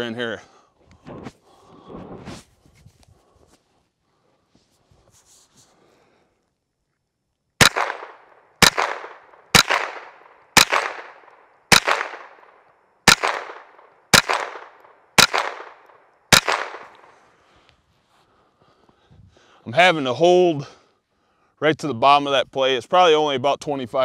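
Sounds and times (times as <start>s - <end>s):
rifle shots with echo: 7.6s - 17.2s.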